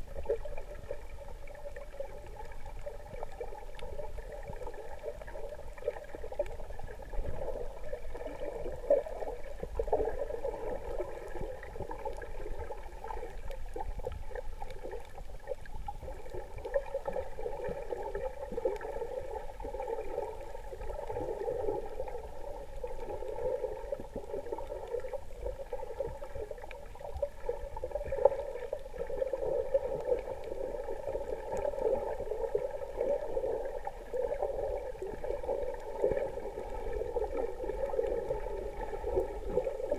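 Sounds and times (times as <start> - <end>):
muffled underwater water noise: 0.0 - 39.9.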